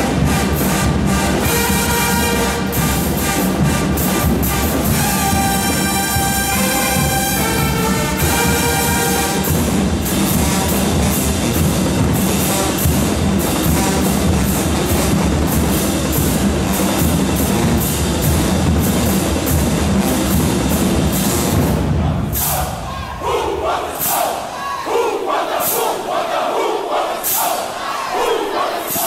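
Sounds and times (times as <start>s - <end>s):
horns holding a chord: 0.0s - 9.8s
marching drums and cymbals: 0.0s - 29.0s.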